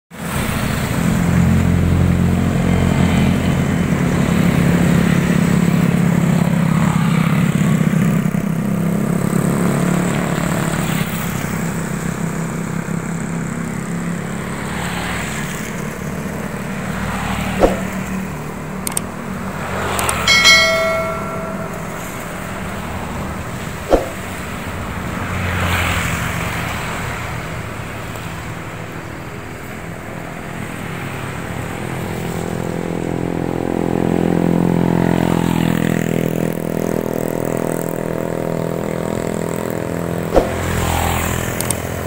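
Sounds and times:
wet road noise: 0:24.4 - 0:33.6.

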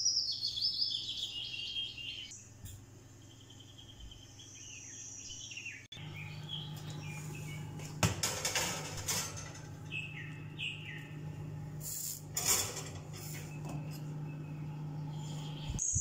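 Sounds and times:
falling bird chirps: 0:03.2 - 0:16.0
low steady hum: 0:06.0 - 0:16.0
glass dish scraping on metal shelf: 0:08.0 - 0:09.9, 0:12.0 - 0:14.0.

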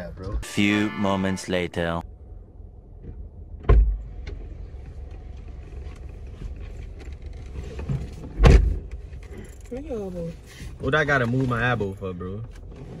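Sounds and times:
car engine idling: 0:01.5 - 0:07.6
dull thump: 0:03.0 - 0:04.0.

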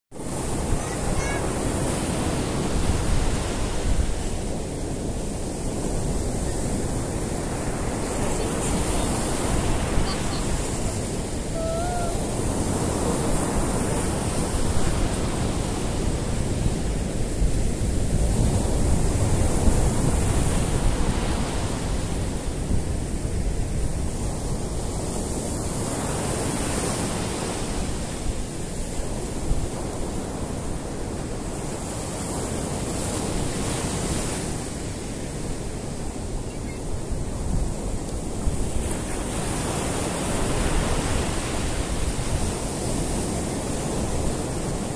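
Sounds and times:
surf breaking on beach: 0:00.2 - 0:23.1.

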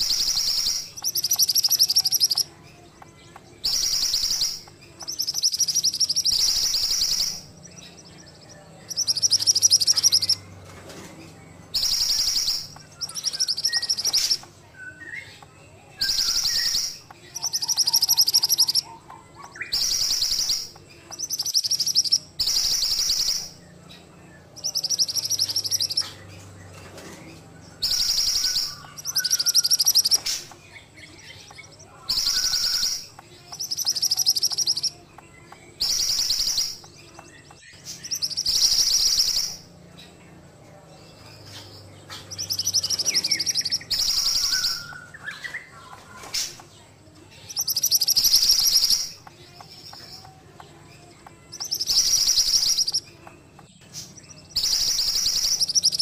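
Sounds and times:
soft low bird chirps: 0:00.0 - 0:40.2, 0:41.0 - 0:56.0
songbird high trill: 0:03.7 - 0:10.4, 0:16.0 - 0:23.6, 0:31.3 - 0:35.0.

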